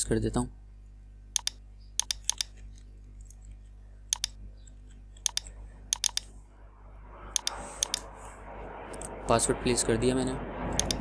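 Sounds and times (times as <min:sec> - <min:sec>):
faint low hum: 0:00.0 - 0:11.0
keyboard and mouse clicks: 0:01.4 - 0:06.3, 0:07.3 - 0:08.0, 0:10.8 - 0:11.0.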